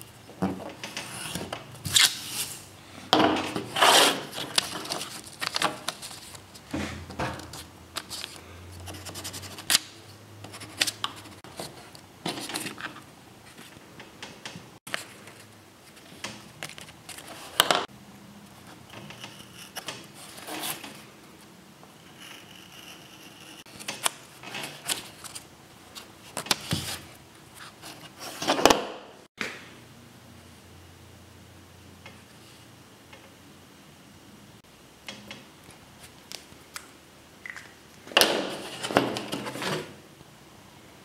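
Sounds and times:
paper sheets rustling: 3.6s - 6.6s.

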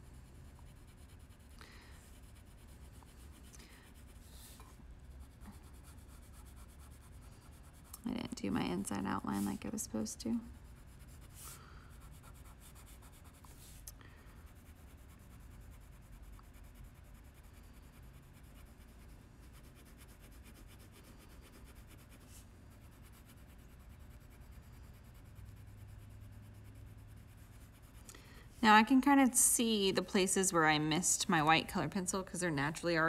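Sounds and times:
colored pencil scratching on paper: 0.0s - 31.0s.

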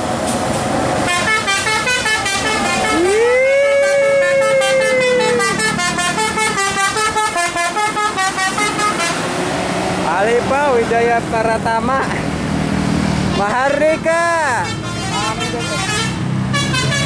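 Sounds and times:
bus engine running: 0.0s - 17.0s
bus horn playing a tune: 1.0s - 9.3s, 14.5s - 17.0s.

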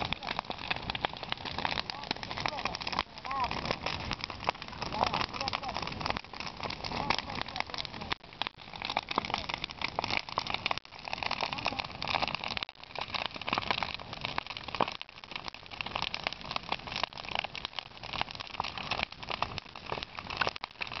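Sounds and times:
bonfire crackling and popping: 0.0s - 21.0s.

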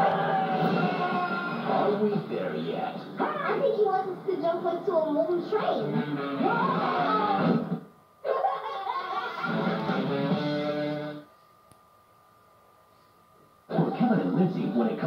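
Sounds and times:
movie trailer music from tv: 0.0s - 3.2s.

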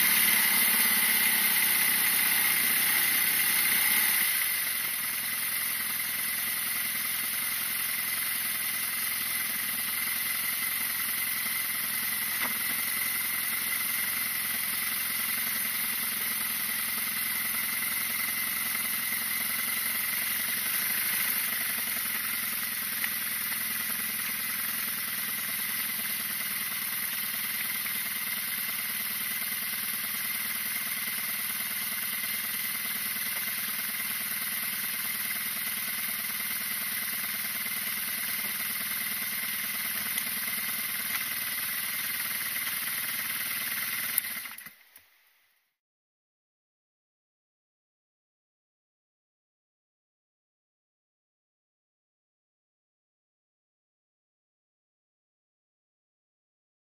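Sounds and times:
motorcycle engine idling: 0.0s - 45.1s.

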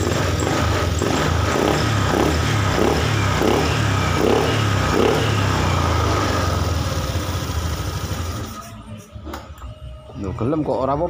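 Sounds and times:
scooter engine idling: 0.0s - 8.7s.

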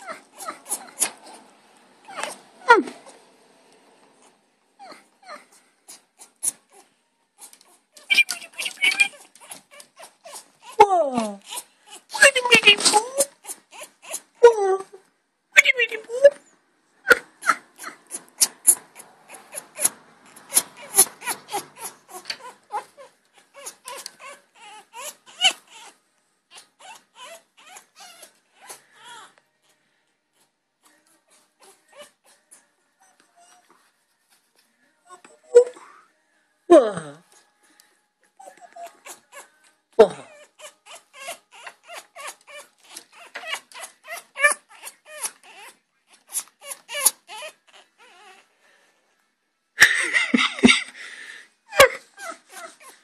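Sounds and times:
parrot chattering: 0.0s - 1.4s, 7.4s - 10.8s, 17.1s - 25.9s, 38.5s - 48.4s
parrot whining calls: 8.0s - 10.8s.

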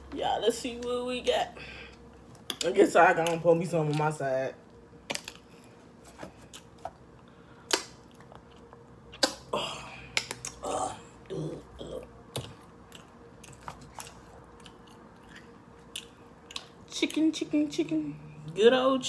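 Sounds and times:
chewing: 8.0s - 9.3s, 12.3s - 17.2s.

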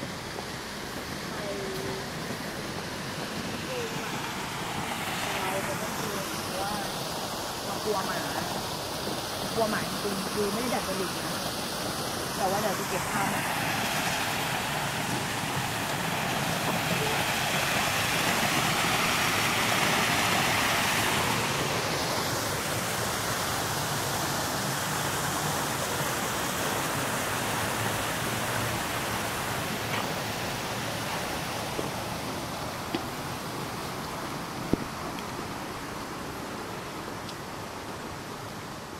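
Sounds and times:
steady rushing outdoor noise: 0.0s - 38.9s.

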